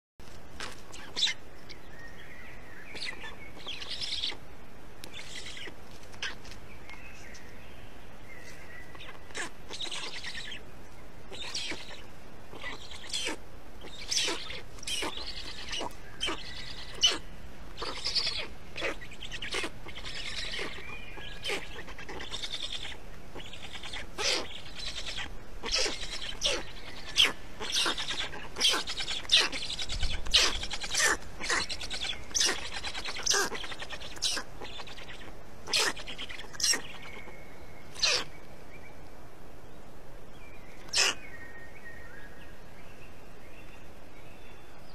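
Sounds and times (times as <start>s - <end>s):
stork chicks chirping: 2.9s - 4.4s, 8.4s - 10.7s, 11.3s - 38.4s, 40.8s - 41.2s.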